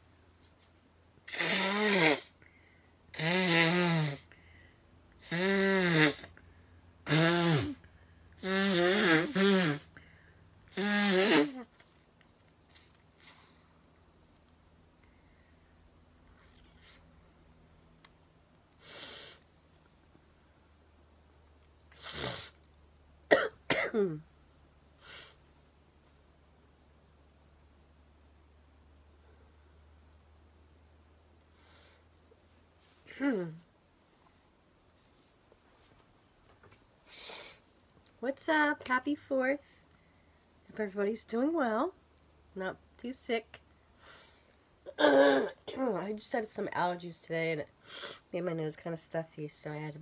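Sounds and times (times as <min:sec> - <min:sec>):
person blowing nose: 0:01.3 - 0:02.3, 0:03.2 - 0:04.3, 0:05.2 - 0:06.3, 0:07.1 - 0:09.9, 0:10.7 - 0:11.7, 0:18.8 - 0:19.4, 0:21.9 - 0:22.6, 0:37.1 - 0:37.6.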